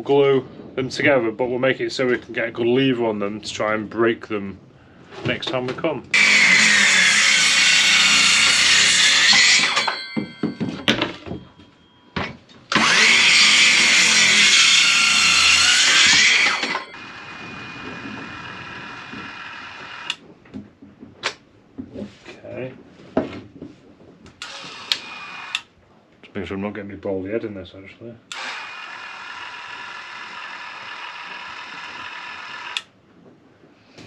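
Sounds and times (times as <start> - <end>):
circular saw cutting wood: 6.1 - 10.3, 12.7 - 20.2, 24.4 - 25.7, 28.3 - 32.9
saw whirring: 6.1 - 10.6, 12.7 - 20.2, 24.4 - 25.7, 28.3 - 32.9.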